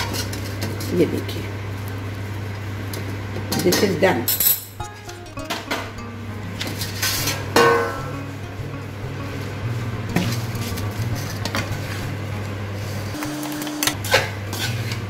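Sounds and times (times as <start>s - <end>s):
steady low hum: 4.6s - 15.0s
metal spoon scraping: 14.0s - 15.0s.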